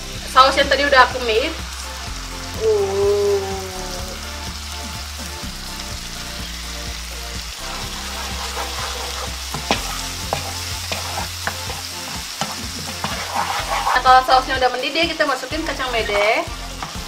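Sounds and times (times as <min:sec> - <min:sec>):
sauce sizzling in frying pan: 0:00.0 - 0:17.0
spatula scraping pan: 0:07.6 - 0:17.0.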